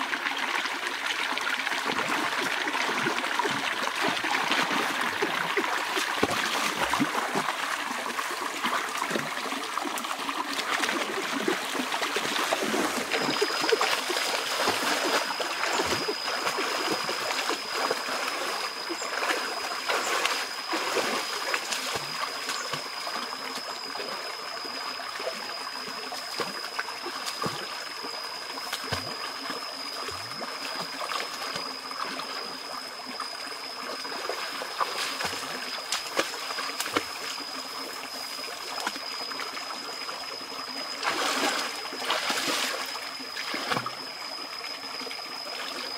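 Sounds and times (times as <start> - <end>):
stream running over stones: 0.0 - 45.9
person wading and splashing: 10.1 - 22.8, 41.0 - 43.8.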